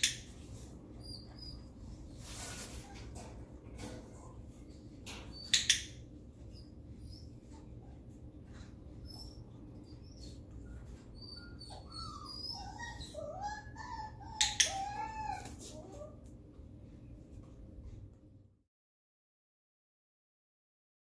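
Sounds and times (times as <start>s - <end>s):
puppy whining: 0.0s - 16.3s.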